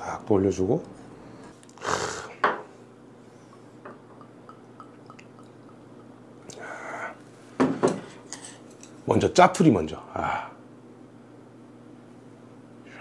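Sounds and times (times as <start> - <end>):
liquid dripping into dish: 3.5 - 6.2
tableware set down: 7.6 - 8.1.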